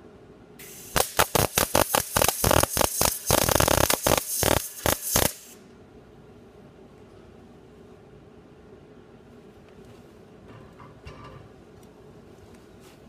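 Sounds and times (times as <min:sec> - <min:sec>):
welding arc crackling: 0:00.6 - 0:05.6
steady hiss: 0:00.6 - 0:05.8.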